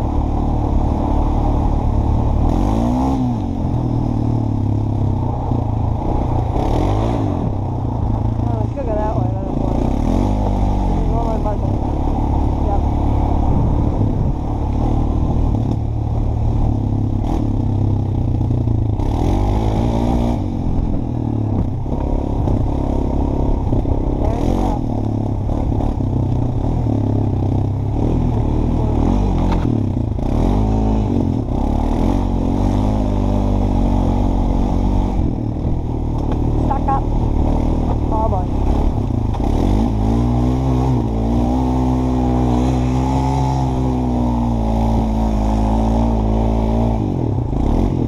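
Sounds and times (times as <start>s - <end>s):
atv engine revving: 0.0s - 48.0s.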